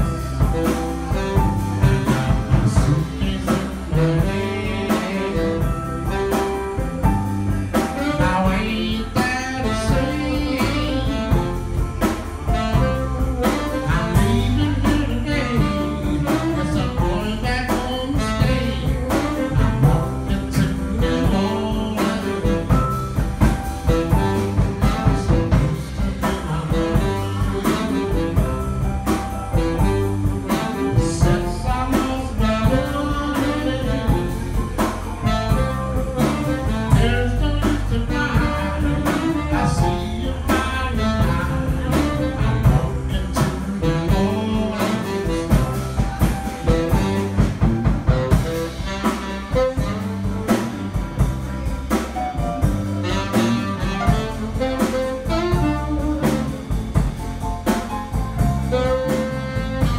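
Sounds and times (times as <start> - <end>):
drums: 0.0 - 59.9
electric bass: 0.0 - 59.9
keyboard: 0.0 - 59.9
tenor saxophone: 0.0 - 59.9.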